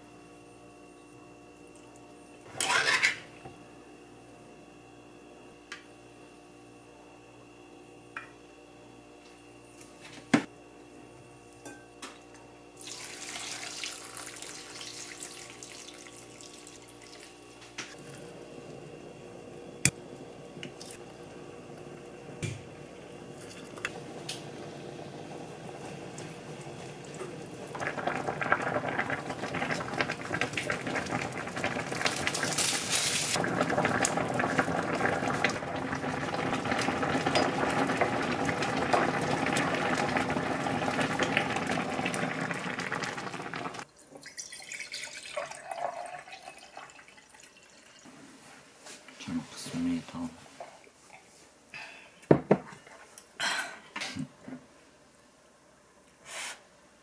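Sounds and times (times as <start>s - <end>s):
dishes clattering: 2.5s - 3.3s, 52.3s - 54.2s
broth pouring into pot: 12.8s - 48.1s
stew bubbling: 23.2s - 32.6s.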